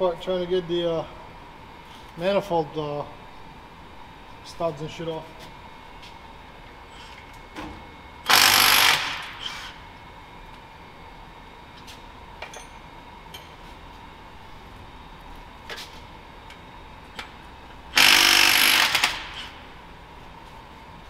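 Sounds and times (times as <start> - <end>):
impact wrench hammering: 8.3 - 9.4, 18.0 - 19.6.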